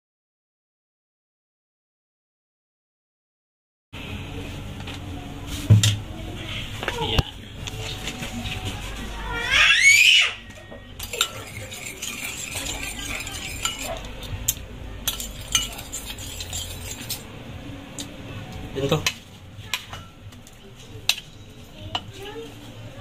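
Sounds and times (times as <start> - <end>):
spoon clinking against bowl: 11.0 - 17.2
metal spoon stirring liquid: 11.0 - 17.4.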